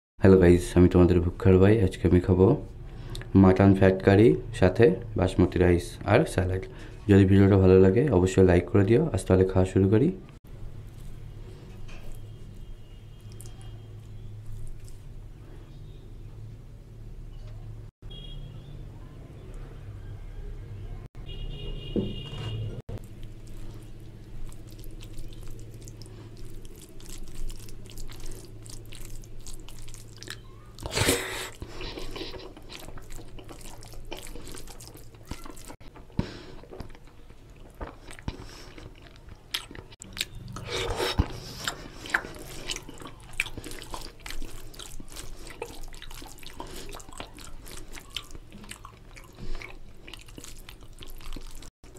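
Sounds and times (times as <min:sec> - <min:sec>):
person chewing: 0:10.8 - 0:15.2, 0:22.9 - 0:51.9
fingers mixing wet rice: 0:13.2 - 0:15.2, 0:23.0 - 0:30.9, 0:31.5 - 0:36.0, 0:41.2 - 0:51.7.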